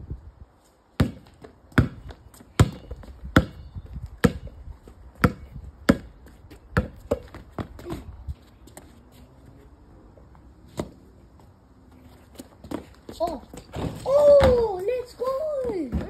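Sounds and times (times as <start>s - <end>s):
basketball bouncing on brick: 1.0s - 4.5s, 5.2s - 6.2s, 13.5s - 14.8s, 15.6s - 16.0s.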